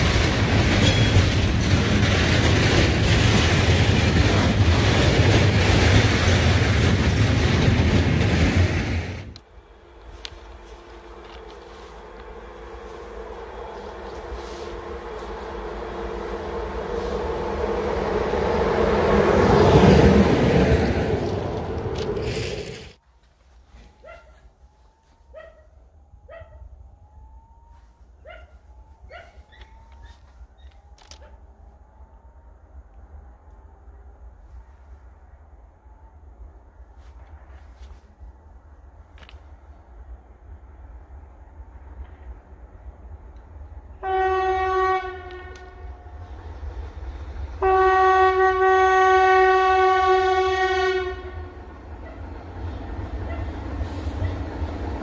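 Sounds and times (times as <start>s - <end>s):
locomotive horn blasts: 9.8s - 20.2s, 43.9s - 46.0s, 47.6s - 51.7s
dog barking: 24.0s - 24.5s, 25.3s - 26.7s, 28.2s - 29.6s.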